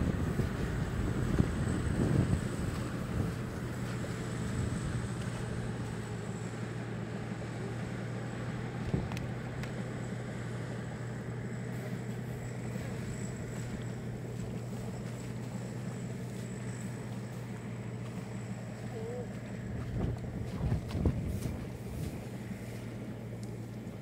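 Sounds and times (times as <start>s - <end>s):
wind on microphone: 0.0s - 5.2s, 19.7s - 22.3s
harvester engine humming: 0.0s - 24.0s.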